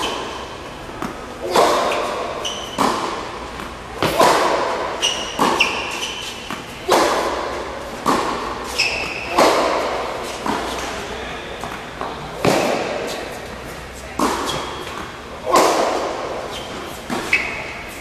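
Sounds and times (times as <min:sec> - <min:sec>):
ball bouncing on hard court: 0:00.0 - 0:10.8, 0:11.6 - 0:13.2, 0:14.2 - 0:16.1
tennis ball struck by racket: 0:00.0 - 0:10.9, 0:12.4 - 0:13.3, 0:14.2 - 0:17.6
short high squeaks: 0:01.9 - 0:03.0, 0:05.0 - 0:06.5, 0:08.7 - 0:09.4, 0:16.5 - 0:17.8.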